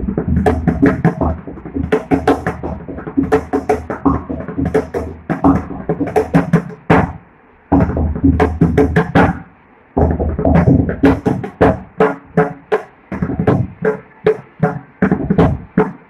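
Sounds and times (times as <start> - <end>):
deep bass drum strokes: 0.0 - 9.4
hand drum strokes: 0.0 - 16.0.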